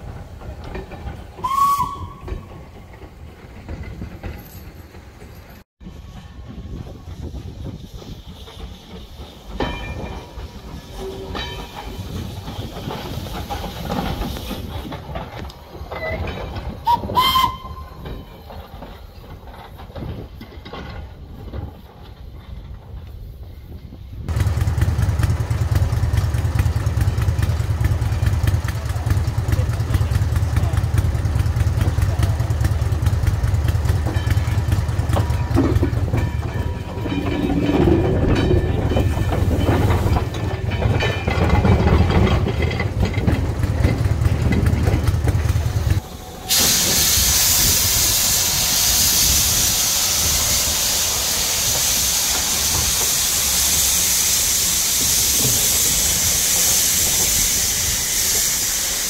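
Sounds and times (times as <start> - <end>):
steam locomotive hissing: 0.0 - 59.0
clatter: 24.3 - 46.0.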